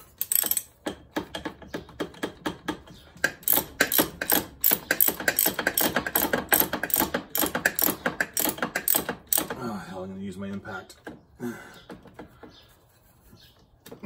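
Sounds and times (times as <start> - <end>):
socket ratchet clicking: 0.1 - 0.7, 3.3 - 9.5.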